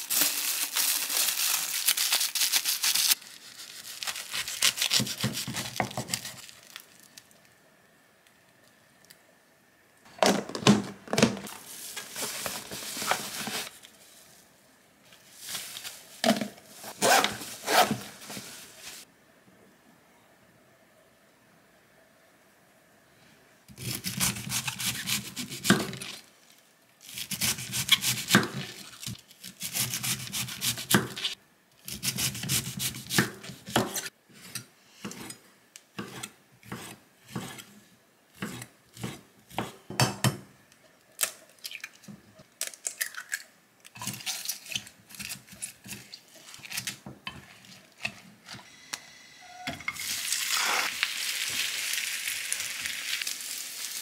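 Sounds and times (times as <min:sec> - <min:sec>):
batter hissing in frying pan: 0:00.0 - 0:04.0, 0:50.0 - 0:54.0.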